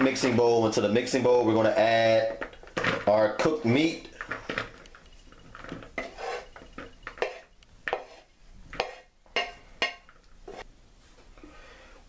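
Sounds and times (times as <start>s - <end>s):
utensil scraping a plate: 4.5s - 10.7s.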